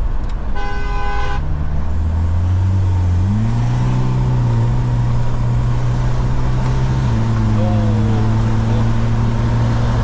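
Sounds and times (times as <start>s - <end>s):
diesel engine running from cabin: 4.3s - 10.0s.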